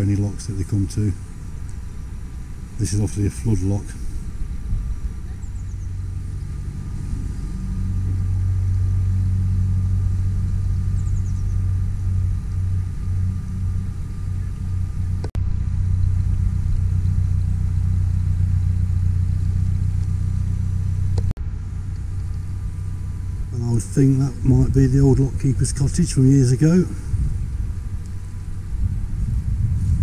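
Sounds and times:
boat engine rumbling: 0.0 - 30.0.

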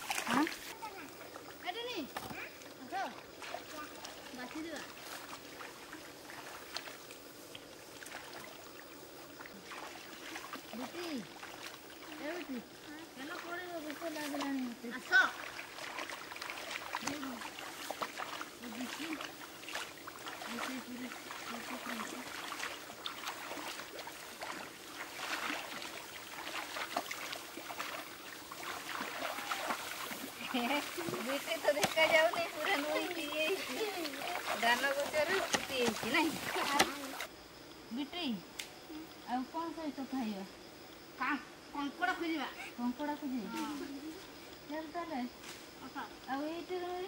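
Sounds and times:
light water splashes: 0.0 - 37.3
rustling of rice plants: 3.3 - 37.3.

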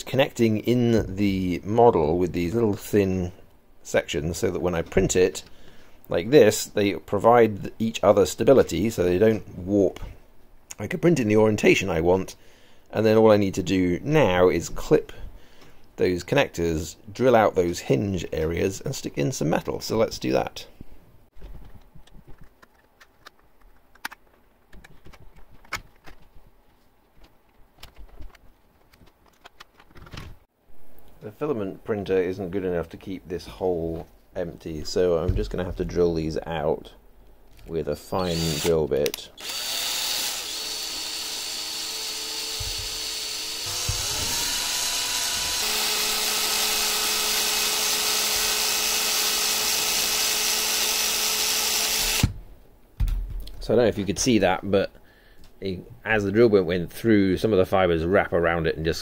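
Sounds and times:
cordless drill whining: 38.2 - 38.8, 39.4 - 52.3.

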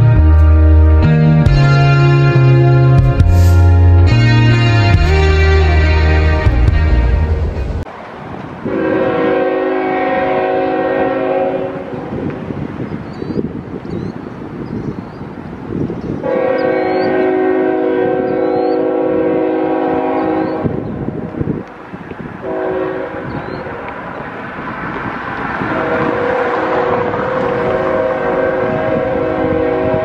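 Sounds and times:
locomotive air horn chord: 0.0 - 7.8, 8.6 - 12.2, 16.2 - 20.8, 22.4 - 23.9, 25.7 - 30.0
train rumble: 0.0 - 30.0.

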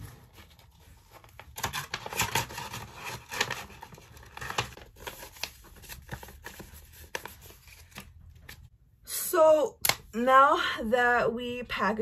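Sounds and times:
padded envelope crinkling: 0.0 - 8.7.

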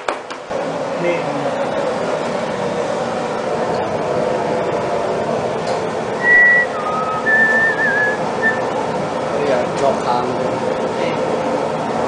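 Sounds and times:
person whistling: 6.2 - 8.6.

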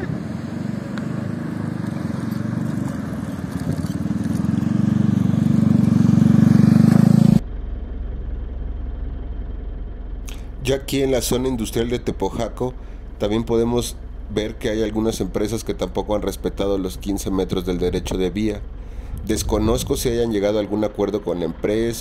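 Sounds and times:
steady low rumble: 0.0 - 22.0
vehicle engine running: 0.0 - 22.0.

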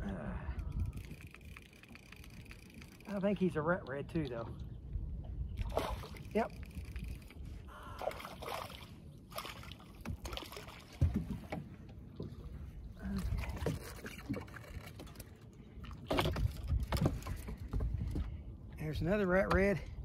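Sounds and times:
wind rumble: 0.0 - 3.6, 4.4 - 9.4
water lapping against boat: 0.0 - 20.0.

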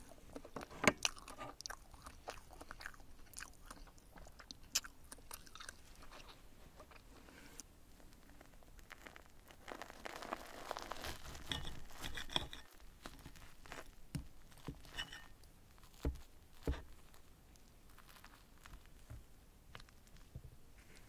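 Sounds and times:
cutlery cutting through omelette: 11.4 - 12.8, 14.7 - 15.4.

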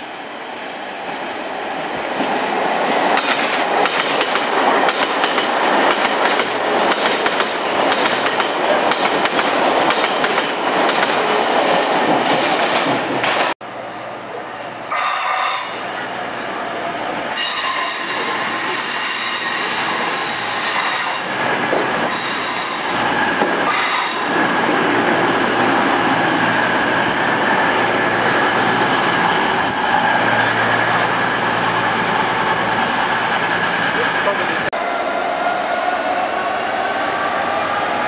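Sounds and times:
train whine and hum: 0.0 - 38.0
train wheels and brakes squealing: 14.2 - 16.3, 17.3 - 24.5.

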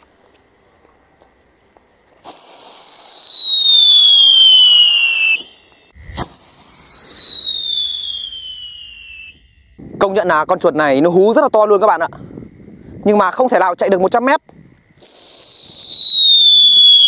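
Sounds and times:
whistling firecrackers: 2.0 - 9.8, 14.6 - 17.0.

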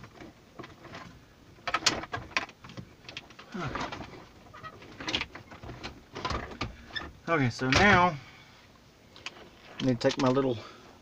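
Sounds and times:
low grunt: 3.5 - 4.0.

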